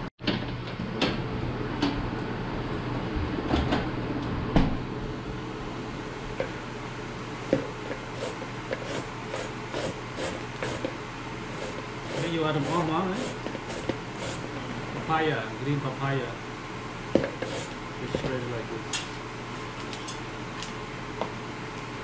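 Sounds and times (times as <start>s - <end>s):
steady low hum: 1.0s - 22.0s
grater rasping strokes: 8.2s - 10.9s, 11.5s - 14.5s, 17.4s - 17.8s.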